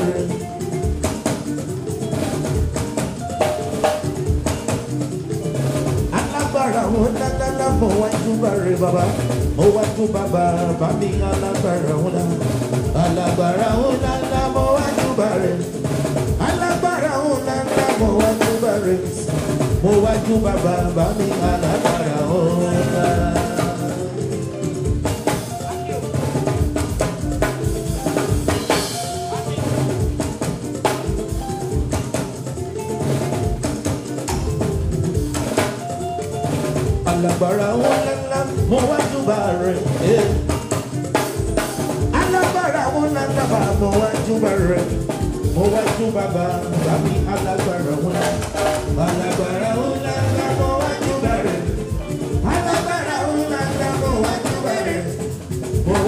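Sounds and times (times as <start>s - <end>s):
man singing into microphone: 0.0s - 0.7s, 6.1s - 24.5s, 37.0s - 40.6s, 42.1s - 56.0s
drum kit beat: 0.0s - 56.0s
keyboards: 0.0s - 56.0s.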